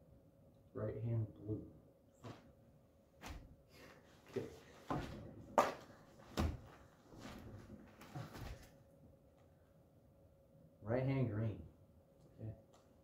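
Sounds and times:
knocks and rustles on plastic mat: 4.7 - 8.8
thump on mat: 6.3 - 6.8.

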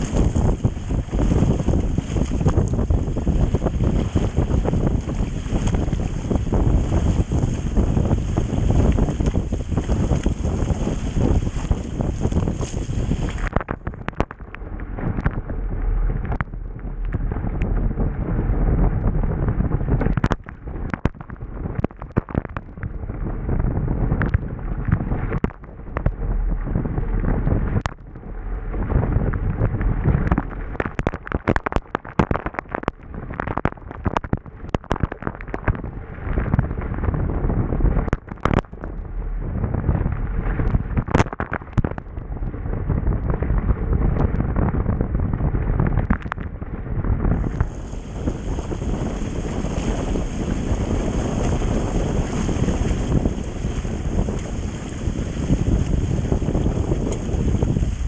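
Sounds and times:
water rushing and splashing: 0.0 - 18.6, 47.4 - 58.0
wind buffeting microphone: 0.0 - 58.0.

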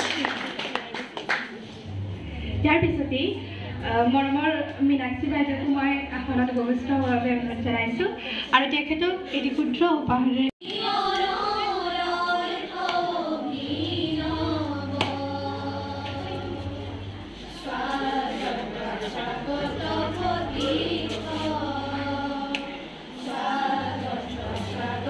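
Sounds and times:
women singing in unison: 10.6 - 25.0.

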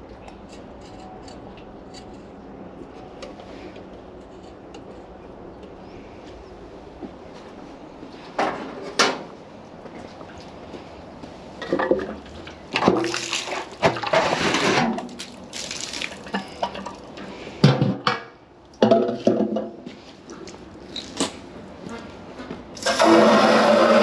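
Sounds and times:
water splashing onto ground: 12.8 - 17.1
buckets knocking and clattering: 17.6 - 19.8.

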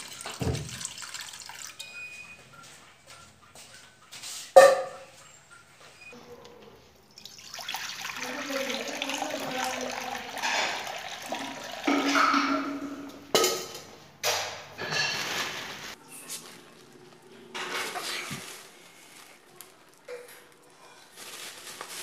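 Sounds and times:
water pouring into a pan: 0.0 - 1.8, 7.2 - 12.4.

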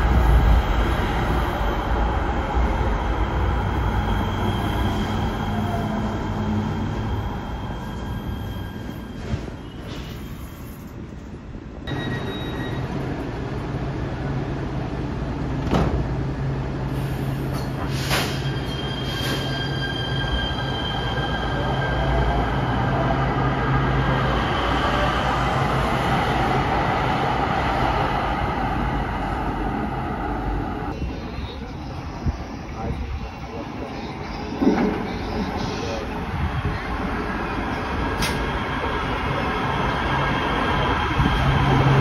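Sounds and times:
light-rail train humming: 0.0 - 42.0
train wheels squealing: 3.8 - 10.9, 11.9 - 13.0, 17.1 - 23.2.

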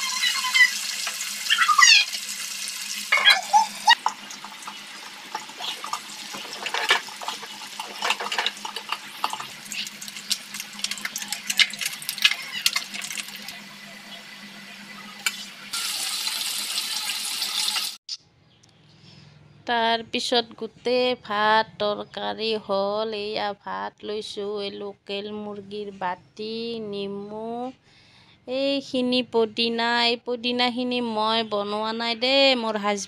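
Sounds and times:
food sizzling in hot oil: 0.0 - 18.0
metal spatula scraping a pan: 5.3 - 9.5.

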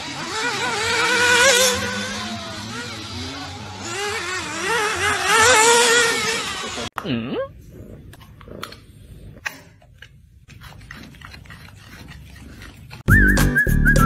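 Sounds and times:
rc car engines buzzing: 0.0 - 7.0.

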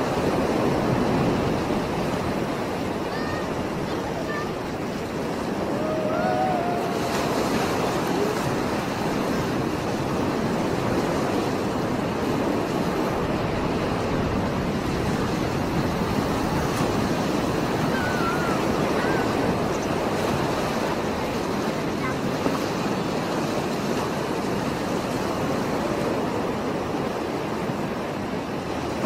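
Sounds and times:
surf breaking on rocky shore: 0.0 - 29.0.

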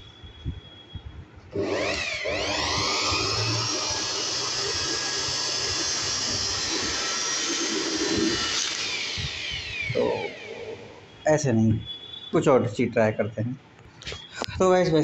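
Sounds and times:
electric blower whining: 1.5 - 11.1.

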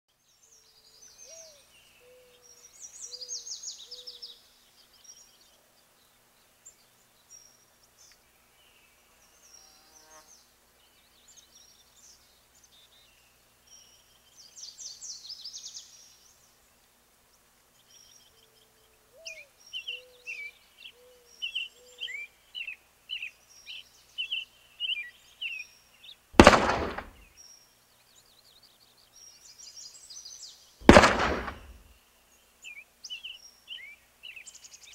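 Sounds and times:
birds singing and chirping: 0.3 - 5.9, 17.8 - 34.9
loud bang: 26.4 - 27.2, 30.8 - 31.8
low repeated call: 26.4 - 27.2, 30.8 - 31.8.

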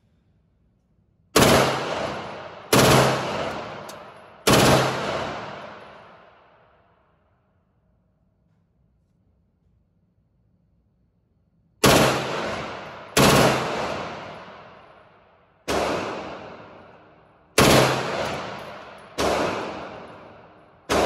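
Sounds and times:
submachine gun shots echoing: 1.4 - 6.4, 11.8 - 21.0.

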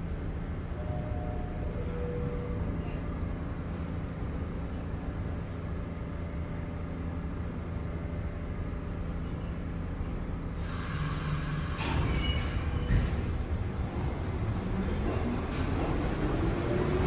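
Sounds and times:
subway train rumbling: 0.0 - 17.0
loud hiss: 10.6 - 12.6.

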